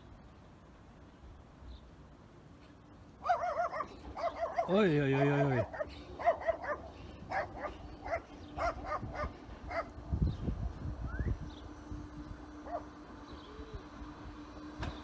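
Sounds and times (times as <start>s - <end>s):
faint steady hum: 0.0s - 15.0s
dog barking: 3.2s - 9.9s, 12.6s - 12.9s.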